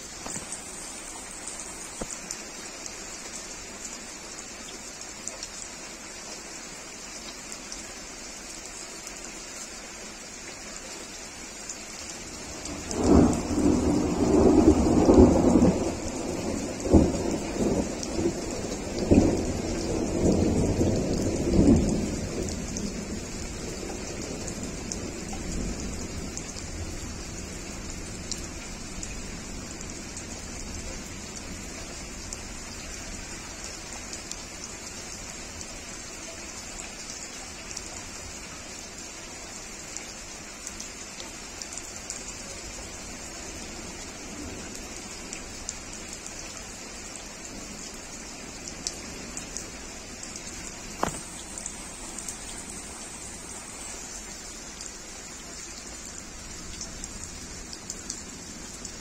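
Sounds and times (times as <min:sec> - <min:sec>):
heavy rain on leaves: 0:00.0 - 0:59.0
low thunder rumble: 0:12.5 - 0:29.0.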